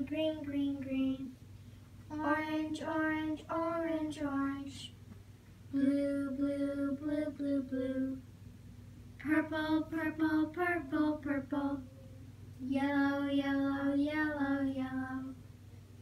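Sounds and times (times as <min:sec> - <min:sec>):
child singing: 0:00.0 - 0:01.3, 0:02.1 - 0:05.0, 0:05.7 - 0:08.2, 0:09.2 - 0:12.0, 0:12.6 - 0:15.4.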